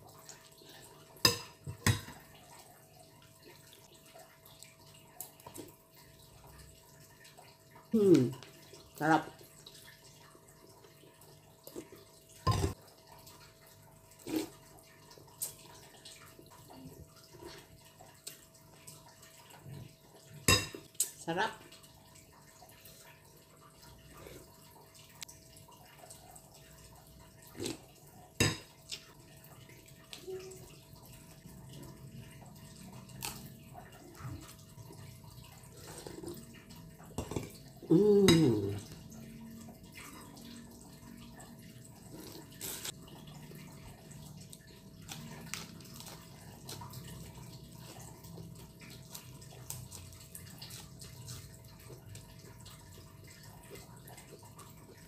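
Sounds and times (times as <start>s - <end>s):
sucking and sipping broth: 14.1s - 15.6s.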